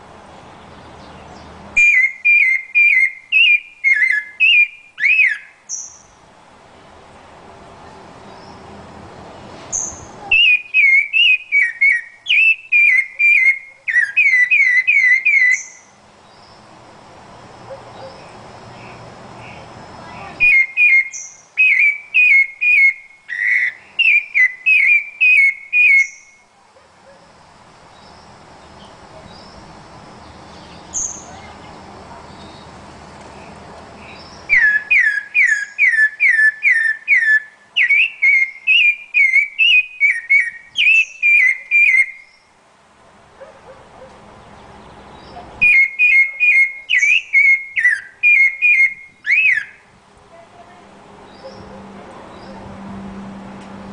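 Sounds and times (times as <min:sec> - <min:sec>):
thrush singing whistled notes: 0:00.6 - 0:06.2, 0:09.7 - 0:16.7, 0:17.5 - 0:26.5, 0:34.0 - 0:42.6, 0:44.8 - 0:49.9.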